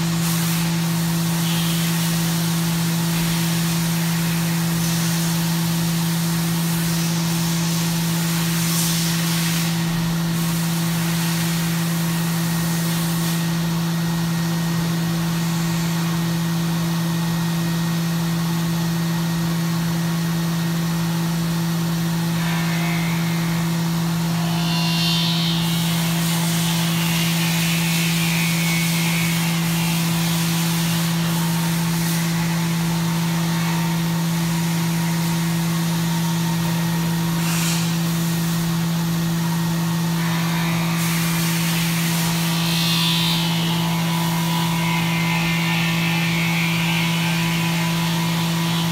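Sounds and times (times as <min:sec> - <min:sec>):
high-pitched cutting whine: 0:00.0 - 0:18.3, 0:20.2 - 0:48.9
milling machine humming: 0:21.4 - 0:48.9.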